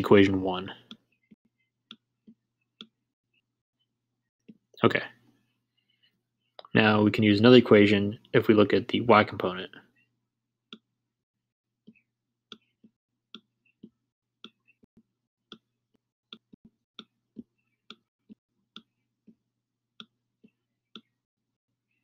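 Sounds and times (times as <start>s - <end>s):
stylus tapping on tablet screen: 16.3s - 19.4s, 20.0s - 21.2s.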